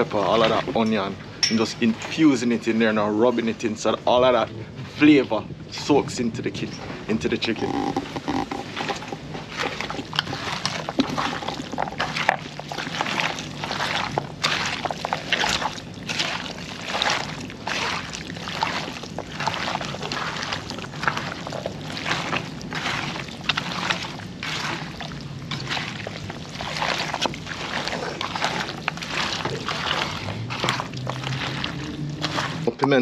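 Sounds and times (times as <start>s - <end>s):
hands squelching wet chicken: 7.5s - 33.0s.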